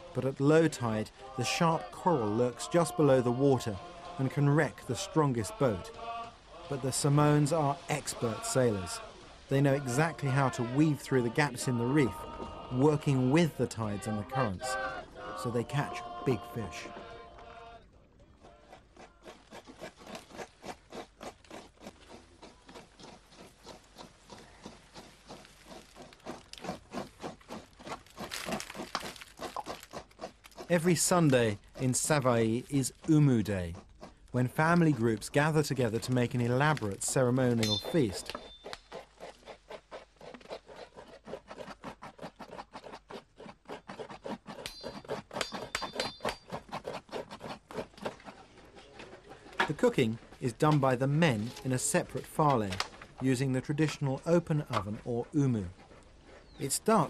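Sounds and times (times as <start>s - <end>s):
hand scraping strokes: 0.0s - 17.6s, 18.5s - 57.0s
high thin chirps: 37.6s - 38.9s.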